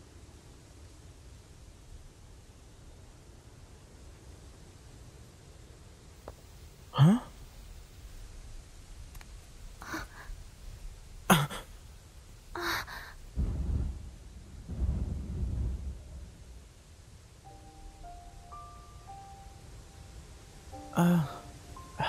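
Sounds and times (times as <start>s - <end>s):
low muffled rumbles: 6.3s - 17.4s
person sighing: 6.9s - 7.4s, 9.8s - 10.3s, 11.3s - 11.7s, 12.6s - 13.2s, 20.8s - 22.0s
person breathing and gasping: 9.8s - 10.4s, 12.6s - 13.2s, 21.0s - 21.5s.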